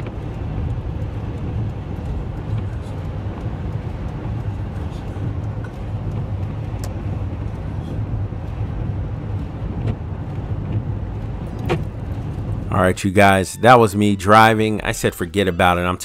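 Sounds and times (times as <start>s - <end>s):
light ticks: 0.0s - 8.7s
car road noise rumble: 0.0s - 16.0s.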